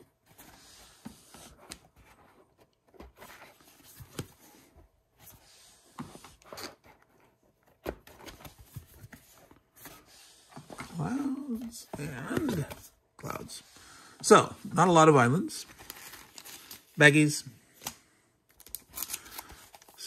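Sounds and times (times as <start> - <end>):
cardboard boards rustling and sliding: 0.1 - 13.6.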